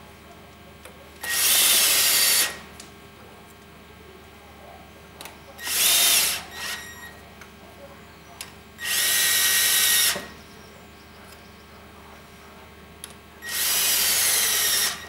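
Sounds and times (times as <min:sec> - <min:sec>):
drill spinning a socket: 0:01.2 - 0:02.6, 0:05.6 - 0:06.8, 0:08.8 - 0:10.3, 0:13.4 - 0:15.0.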